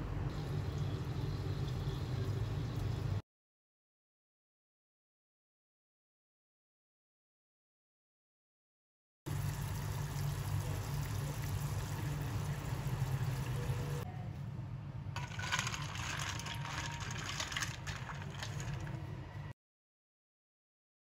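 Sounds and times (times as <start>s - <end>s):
hot pot crackling and fizzing: 0.3s - 3.2s, 9.3s - 14.1s, 15.2s - 19.4s
honey bubbling in saucepan: 15.2s - 19.1s.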